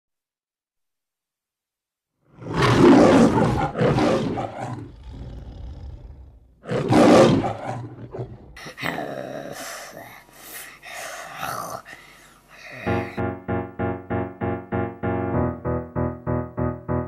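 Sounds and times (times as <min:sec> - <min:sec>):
lion roaring: 0:02.3 - 0:08.6.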